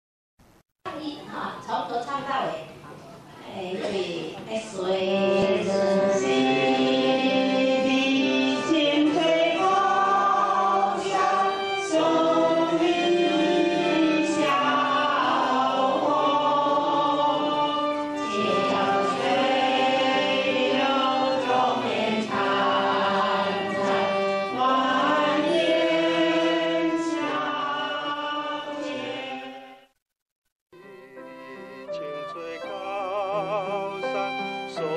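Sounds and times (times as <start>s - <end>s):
people singing a school song: 4.9s - 30.0s.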